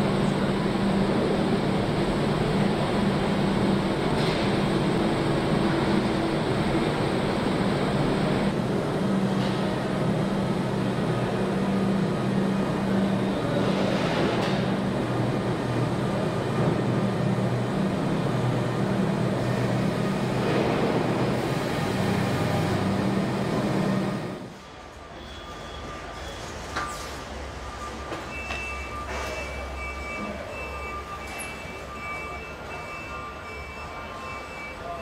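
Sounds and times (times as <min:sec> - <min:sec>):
factory machinery hum: 0:00.0 - 0:35.0.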